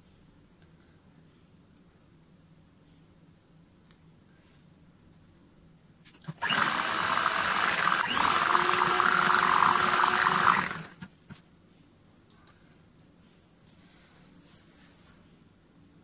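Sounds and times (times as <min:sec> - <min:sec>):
electric hand mixer whipping batter: 0:06.4 - 0:11.0.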